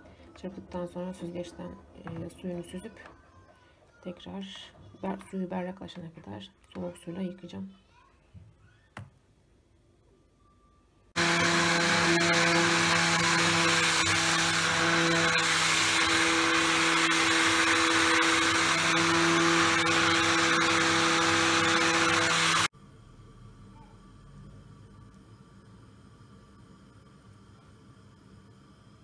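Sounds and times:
stick blender running: 0:11.2 - 0:22.7.

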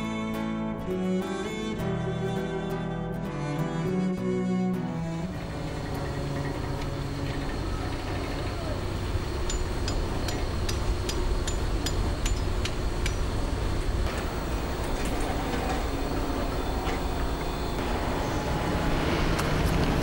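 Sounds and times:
low rumble of machinery: 0:05.0 - 0:20.0.

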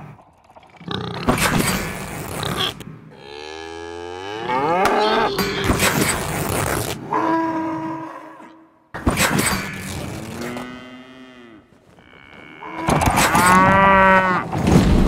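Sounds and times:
cow mooing: 0:03.1 - 0:05.6, 0:10.2 - 0:14.5.

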